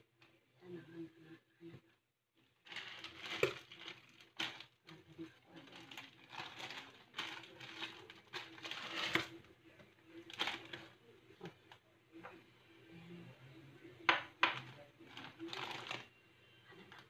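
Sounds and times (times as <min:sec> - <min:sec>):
plastic packets crinkling: 0:02.6 - 0:09.4, 0:10.2 - 0:10.9, 0:14.5 - 0:16.1.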